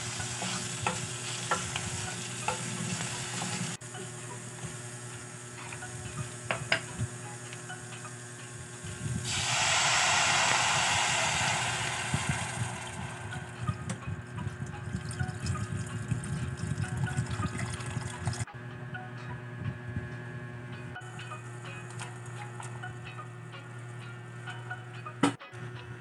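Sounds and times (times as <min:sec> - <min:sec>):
water hissing on hot pan: 0:00.0 - 0:03.8, 0:09.2 - 0:14.0
water pouring with splashes: 0:09.3 - 0:13.8, 0:15.0 - 0:18.5.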